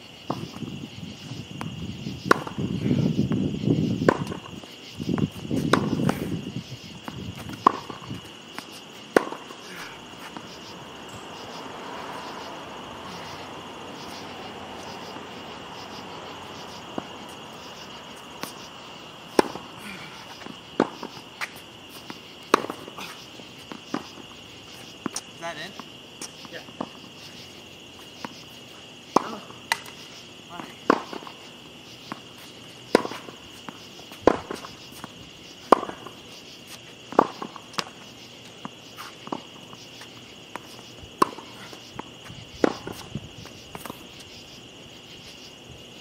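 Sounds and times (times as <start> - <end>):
crickets chirping: 0.0 - 46.0
tennis ball hits: 1.6 - 2.6, 4.0 - 4.6, 5.2 - 6.4, 7.0 - 10.6, 19.3 - 24.3, 29.1 - 30.0, 30.6 - 31.4, 32.1 - 36.2, 37.1 - 38.0, 38.6 - 43.1.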